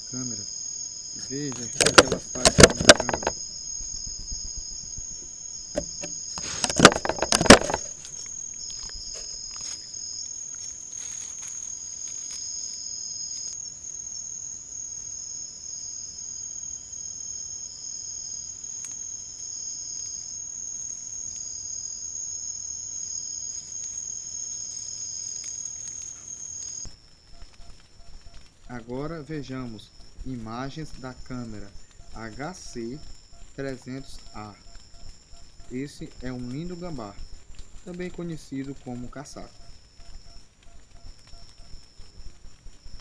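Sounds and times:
night insects chorus: 0.0 - 43.0
knocks and scrapes on microphone: 1.8 - 3.4, 5.8 - 8.0.

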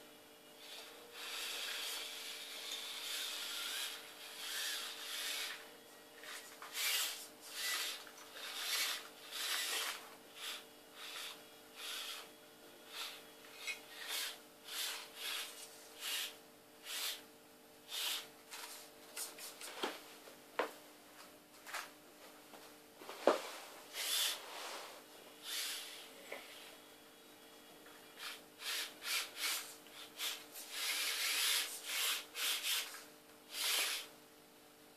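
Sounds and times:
small motor and gears whirring: 0.6 - 17.3, 17.9 - 18.8, 23.9 - 26.7, 28.1 - 34.1.

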